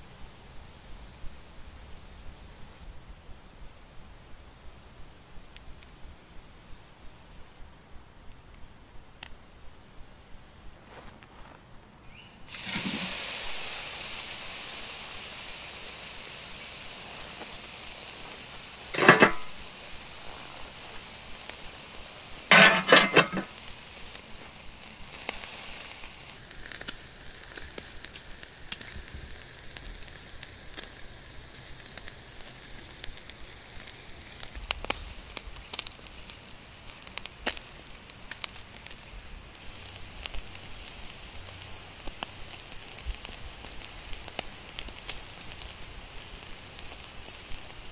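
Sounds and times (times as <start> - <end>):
steak sizzling on grill: 12.2 - 47.9
crackling pops: 12.5 - 13.6, 16.4 - 47.9.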